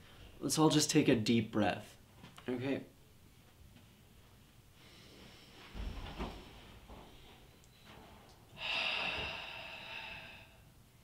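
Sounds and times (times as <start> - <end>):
group breathing in: 8.6 - 10.7
group breathing out: 8.6 - 10.7.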